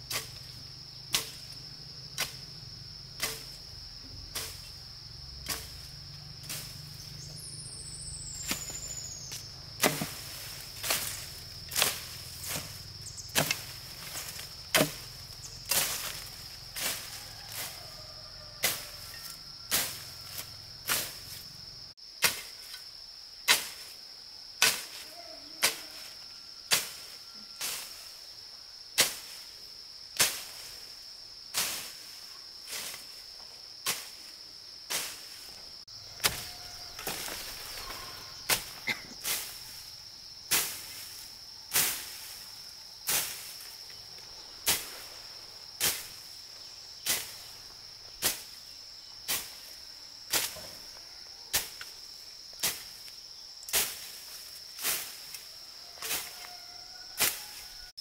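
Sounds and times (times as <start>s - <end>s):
high-pitched insect drone: 0.0s - 22.0s, 35.8s - 42.9s
machete slashing through grass: 3.2s - 3.6s, 9.8s - 12.8s, 13.4s - 15.1s, 36.2s - 39.6s, 40.5s - 41.0s, 43.1s - 43.6s, 45.8s - 46.2s, 53.7s - 54.2s, 54.8s - 55.4s.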